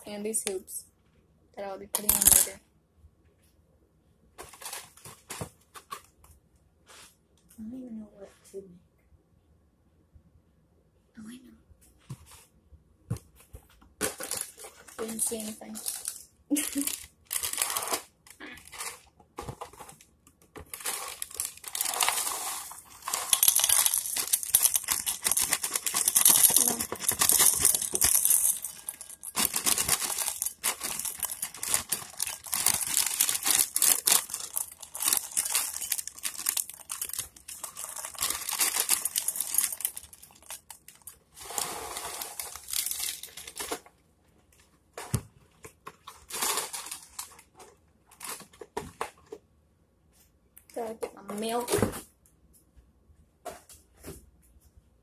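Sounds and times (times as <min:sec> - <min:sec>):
crinkling handling noise: 0:04.3 - 0:07.3, 0:12.0 - 0:49.5.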